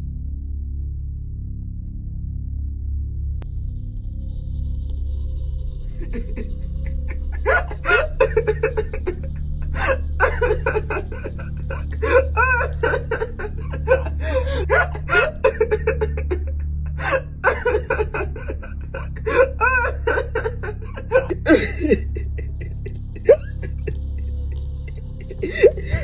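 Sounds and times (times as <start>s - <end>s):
steady low drone: 0.0s - 26.0s
man laughing: 6.0s - 26.0s.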